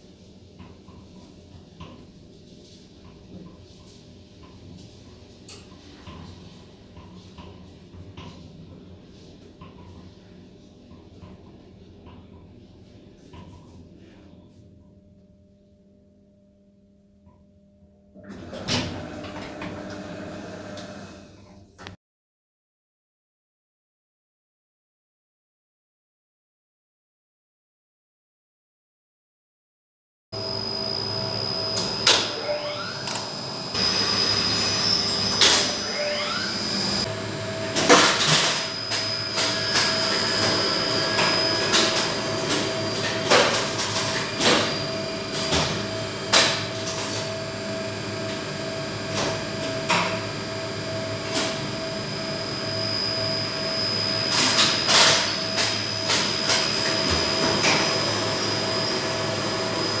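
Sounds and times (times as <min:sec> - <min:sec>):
high whine: 0:30.4 - 0:42.2
machinery hum: 0:30.4 - 1:00.0.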